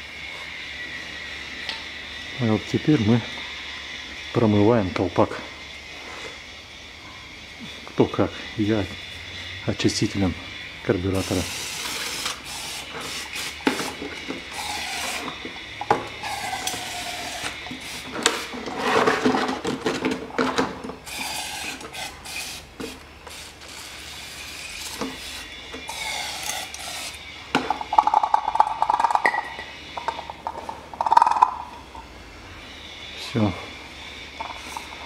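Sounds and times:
aerosol spray hissing: 0:11.2 - 0:15.3, 0:16.2 - 0:18.5, 0:21.1 - 0:27.2
cap clicking and clattering: 0:27.6 - 0:31.7.

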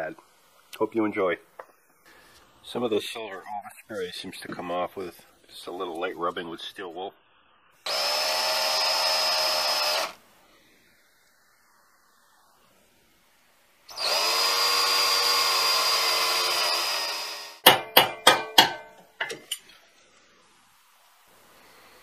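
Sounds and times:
drill with wire brush whining: 0:07.8 - 0:10.2, 0:13.9 - 0:17.7.

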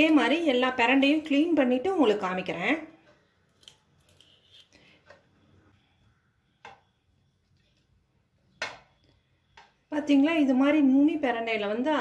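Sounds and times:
knife scraping plant stems: 0:03.5 - 0:04.9.

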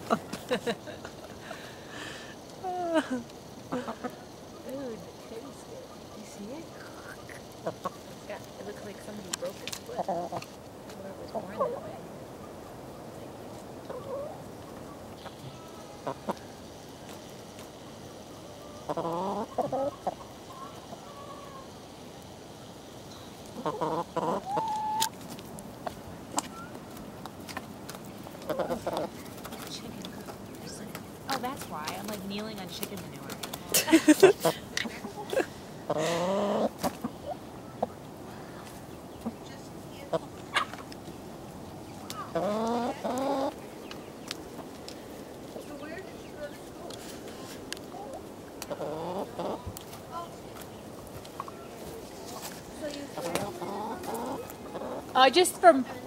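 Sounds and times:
hens clucking: 0:00.0 - 0:47.0, 0:47.6 - 0:56.0
chicken drawn-out calls: 0:13.9 - 0:16.6, 0:18.0 - 0:22.0, 0:23.4 - 0:26.8, 0:28.4 - 0:29.5, 0:35.7 - 0:38.1, 0:42.0 - 0:43.6, 0:48.6 - 0:49.7, 0:53.2 - 0:55.2.

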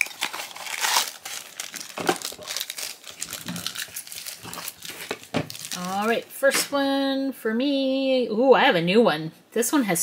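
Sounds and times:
packaging crinkling and rustling: 0:00.0 - 0:06.7.

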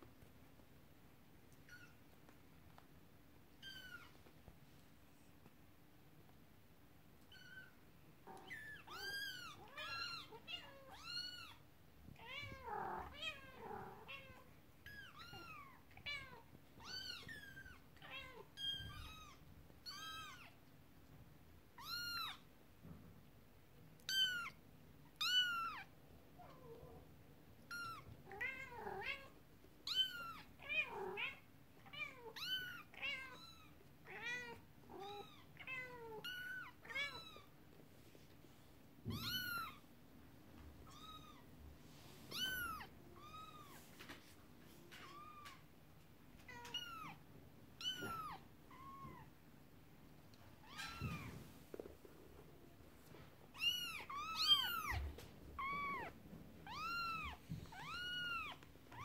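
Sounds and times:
kittens meowing: 0:08.3 - 0:11.6, 0:39.1 - 0:39.8, 0:53.6 - 0:59.0.

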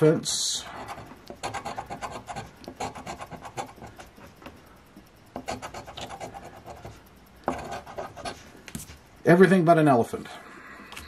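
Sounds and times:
coin scratching lottery ticket: 0:00.7 - 0:04.2, 0:05.4 - 0:08.5.

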